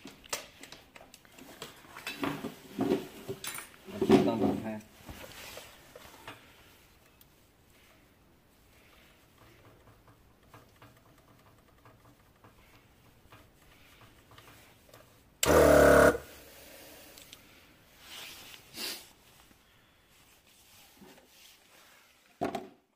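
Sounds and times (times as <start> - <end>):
air compressor running: 15.4 - 16.9.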